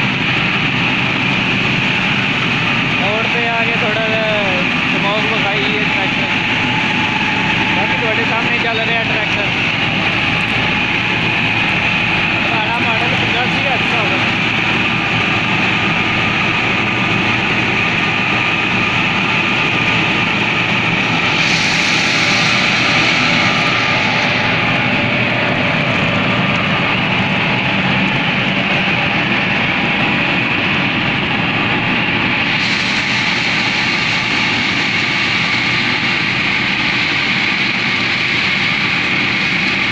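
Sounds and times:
high hiss: 3.9s - 27.2s
tractor engine and chopper: 4.4s - 29.3s.

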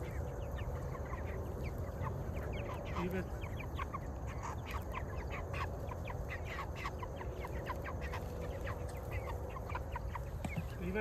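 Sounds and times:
chickens peeping: 0.0s - 11.0s.

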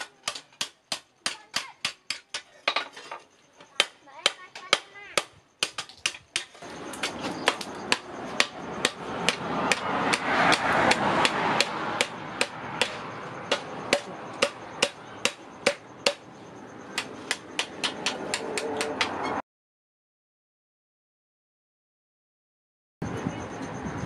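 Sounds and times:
hammer striking hot steel on anvil: 3.8s - 16.2s, 17.0s - 19.2s.

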